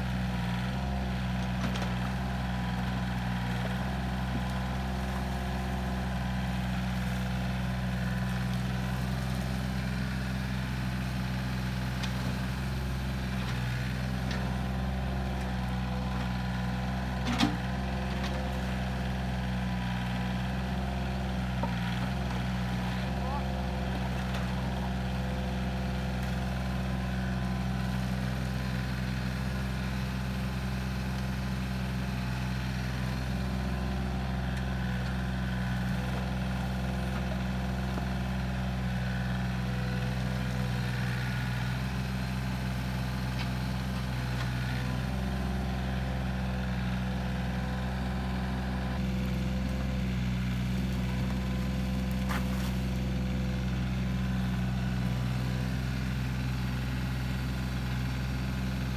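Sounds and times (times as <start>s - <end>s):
excavator diesel engine running: 0.0s - 58.9s.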